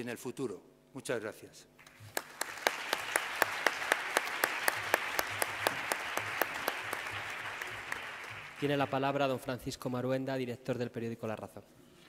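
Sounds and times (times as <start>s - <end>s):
loud claps: 1.8s - 9.2s
audience applauding: 1.8s - 9.3s.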